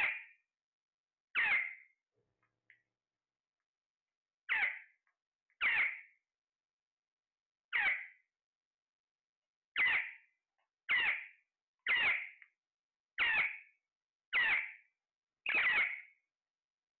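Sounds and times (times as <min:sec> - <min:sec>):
parakeet squawking: 0:00.0 - 0:00.2, 0:01.4 - 0:01.8, 0:04.5 - 0:04.8, 0:05.6 - 0:06.0, 0:07.7 - 0:08.0, 0:09.8 - 0:10.1, 0:10.9 - 0:11.2, 0:11.9 - 0:12.3, 0:13.2 - 0:13.6, 0:14.4 - 0:14.7, 0:15.5 - 0:16.0.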